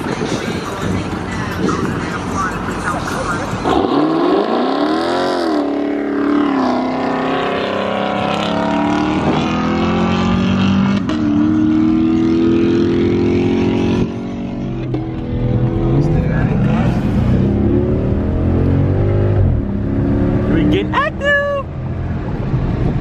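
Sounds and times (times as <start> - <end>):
engine climbing in pitch: 1.6 - 23.0
car engine revving hard: 3.6 - 21.0.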